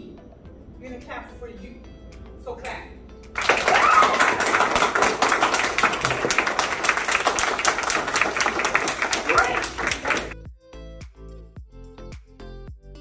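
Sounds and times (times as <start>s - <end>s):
audience clapping: 3.4s - 10.4s.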